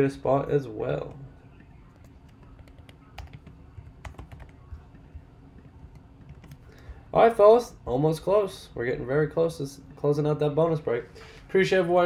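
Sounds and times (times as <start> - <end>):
faint keyboard typing: 1.5 - 7.0.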